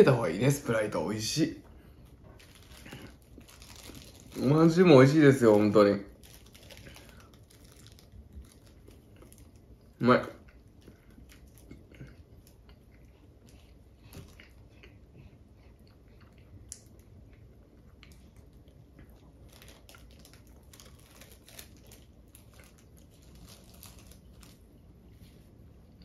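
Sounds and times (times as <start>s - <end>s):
chewing and mouth sounds: 6.4s - 24.5s.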